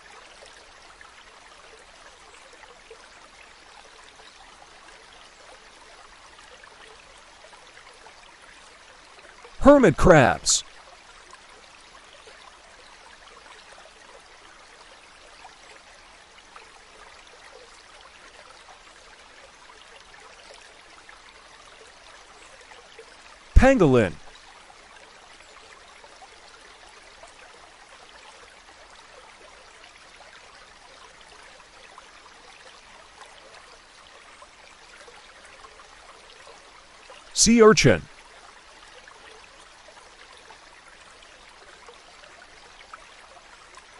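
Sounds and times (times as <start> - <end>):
trickle of running water: 0.0 - 9.6, 10.6 - 23.5, 24.3 - 37.3, 38.1 - 43.9
faint steady hiss: 9.6 - 10.6, 37.4 - 38.1.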